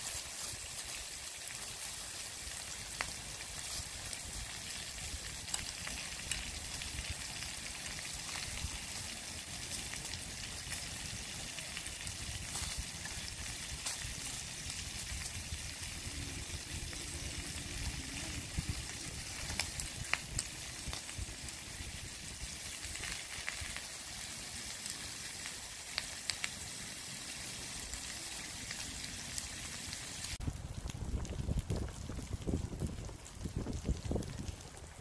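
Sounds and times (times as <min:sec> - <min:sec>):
food sizzling on hotplate: 0:00.0 - 0:30.4
low rumble: 0:15.0 - 0:22.1.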